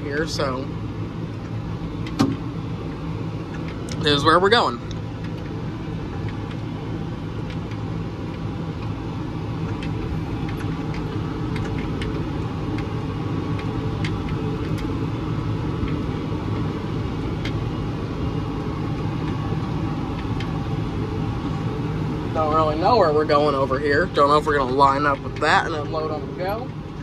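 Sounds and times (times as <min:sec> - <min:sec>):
tractor engine humming: 0:00.0 - 0:27.0
small clicks and rattles: 0:09.6 - 0:12.9.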